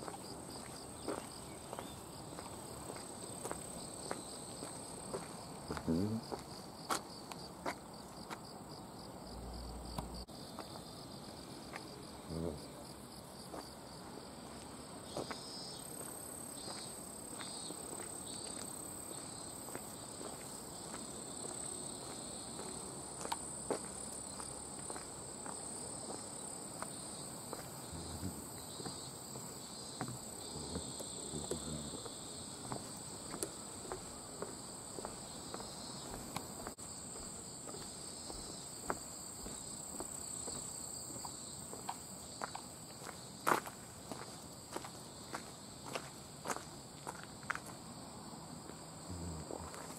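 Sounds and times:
footsteps on wooden footbridge: 0.0s - 8.4s, 27.5s - 47.7s
footsteps on a path: 0.0s - 8.5s, 13.5s - 13.8s, 14.4s - 47.8s, 49.5s - 49.9s
insects chirring: 0.0s - 49.9s.

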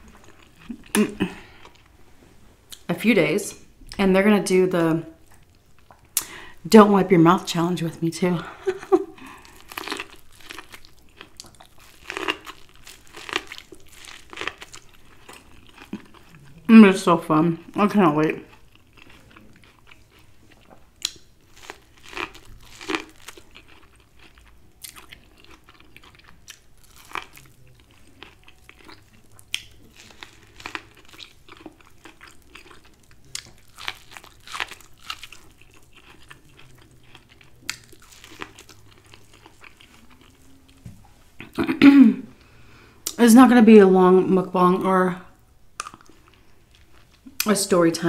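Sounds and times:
person chewing corn on the cob: 9.2s - 16.7s, 18.5s - 40.8s.

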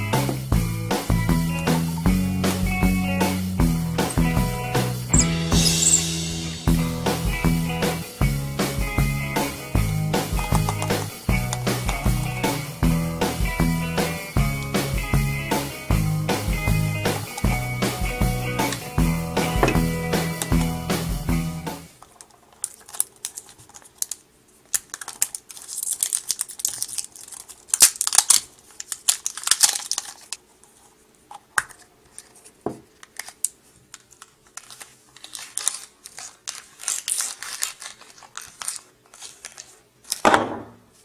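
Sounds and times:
plastic packaging crinkling and tearing: 22.1s - 30.8s, 32.1s - 40.2s.

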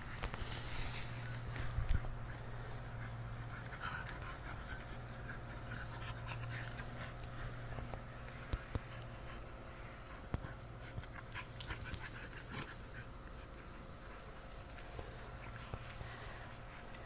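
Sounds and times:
small rustles: 0.0s - 17.0s
dog panting: 1.2s - 17.0s.

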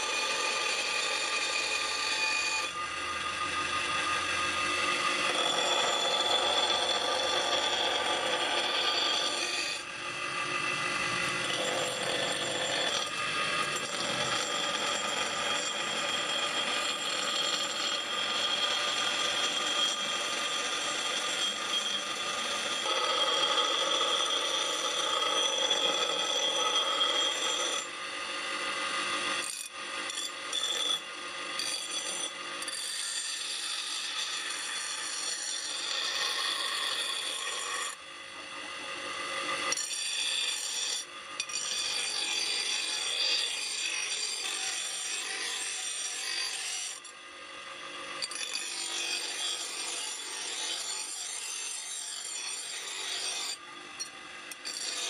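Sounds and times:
grinder wheel grinding steel: 0.0s - 38.0s, 39.2s - 47.2s, 47.8s - 55.0s
grinder whine: 0.0s - 55.0s.

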